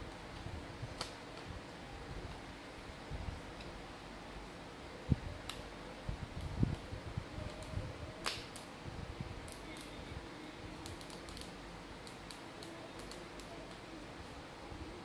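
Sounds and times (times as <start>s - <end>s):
faint steady hum: 0.0s - 15.0s
light plastic clicks: 10.8s - 13.8s.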